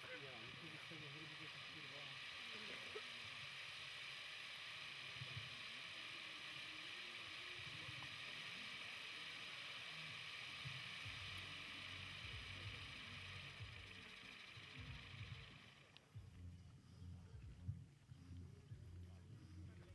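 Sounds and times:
firework hissing: 0.0 - 15.9.

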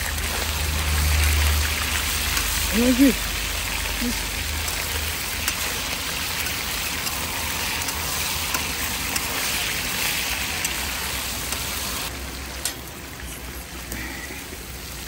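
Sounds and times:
meat sizzling in a pan: 0.0 - 15.0.

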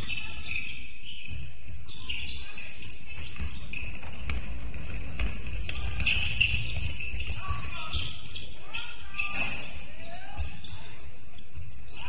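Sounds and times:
shoe squeaks: 0.0 - 4.6, 5.7 - 12.0
basketball bouncing thuds: 3.2 - 8.0
voices: 5.2 - 12.0.

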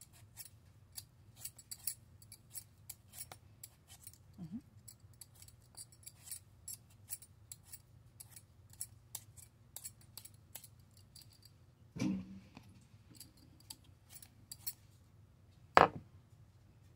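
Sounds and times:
peeler scraping potato skin: 0.0 - 4.2.

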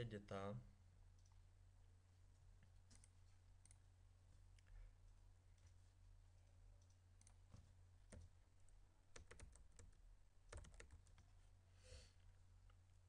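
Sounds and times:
computer keyboard typing: 9.1 - 11.3.

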